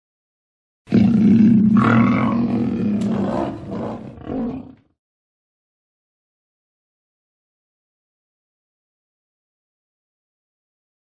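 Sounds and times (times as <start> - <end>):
lion grunts: 0.9 - 4.9
lion roaring: 0.9 - 5.0.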